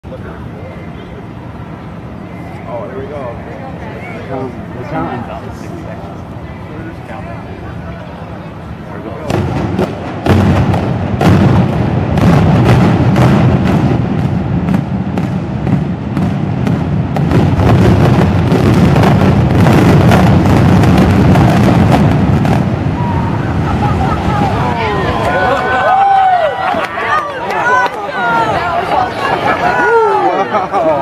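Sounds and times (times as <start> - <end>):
explosive charges cracking: 9.2 - 25.4
rumble of collapsing structure: 9.2 - 26.4.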